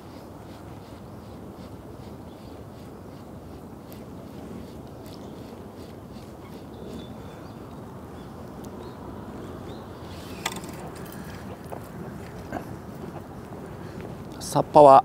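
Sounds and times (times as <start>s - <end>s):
low outdoor background noise: 0.0s - 15.0s.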